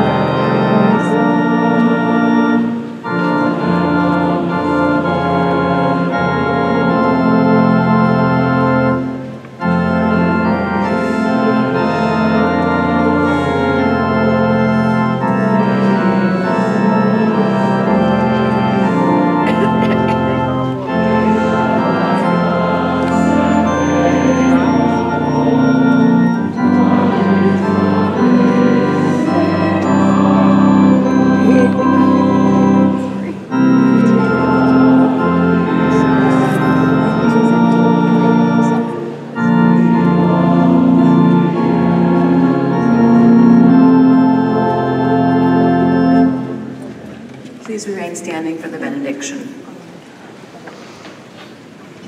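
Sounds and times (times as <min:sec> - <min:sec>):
organ playing sustained chords: 0:00.0 - 0:47.6.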